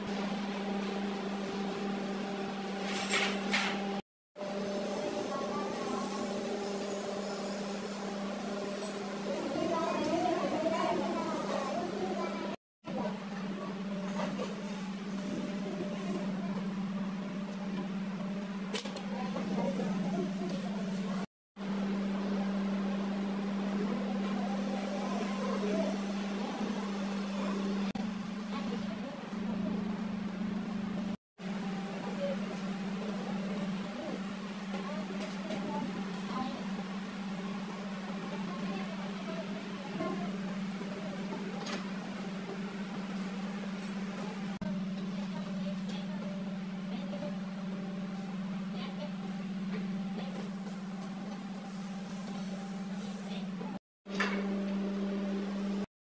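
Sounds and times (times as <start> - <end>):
low machine hum: 0.0 - 55.9.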